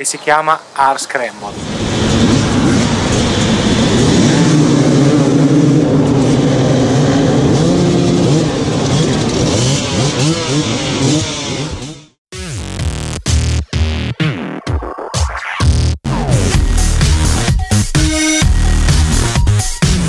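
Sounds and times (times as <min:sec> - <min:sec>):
motorcycle engines revving: 0:01.5 - 0:12.2.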